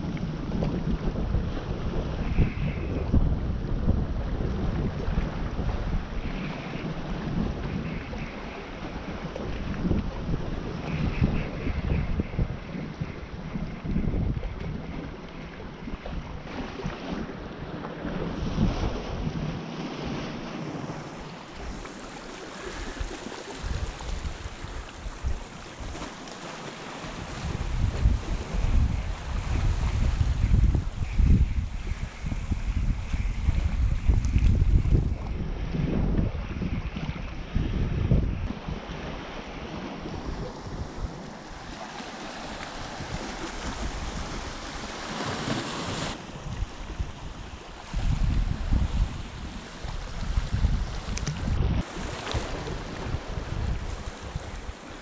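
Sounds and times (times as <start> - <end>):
wind buffeting microphone: 0.0 - 55.0
water lapping against rocks: 38.4 - 55.0.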